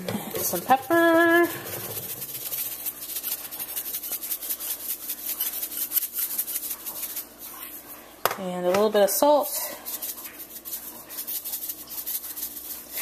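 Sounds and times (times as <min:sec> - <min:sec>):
pepper mill grinding: 0:00.3 - 0:07.3, 0:09.8 - 0:13.0.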